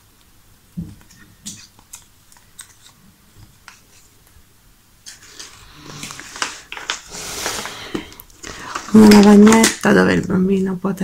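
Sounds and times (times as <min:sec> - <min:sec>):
cardboard tiles clicking and shuffling: 0:00.8 - 0:04.1, 0:05.0 - 0:10.3.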